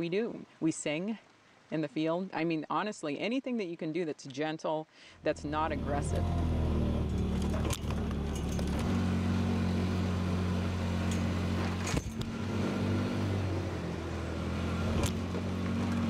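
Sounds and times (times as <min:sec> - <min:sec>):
utility vehicle engine running: 0:05.4 - 0:16.0.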